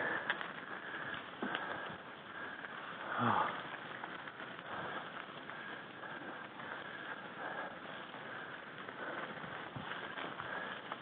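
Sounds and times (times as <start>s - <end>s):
bike tyres crunching over gravel: 0.0s - 11.0s
rider grunting: 3.0s - 3.7s.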